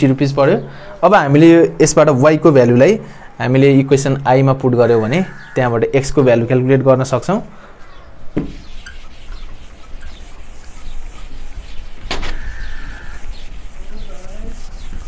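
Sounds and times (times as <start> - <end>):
sharp knock: 8.4 - 8.7, 12.0 - 12.5
duster wiping whiteboard: 8.4 - 15.0.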